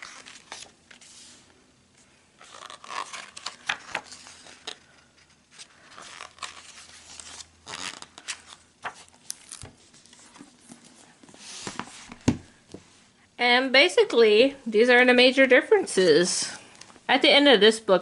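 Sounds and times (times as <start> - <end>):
book pages turning: 0.0 - 1.5, 2.4 - 12.4.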